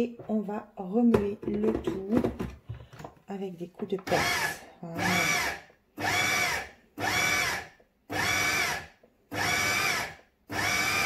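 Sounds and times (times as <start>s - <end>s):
food processor motor pulsing: 4.1s - 11.0s.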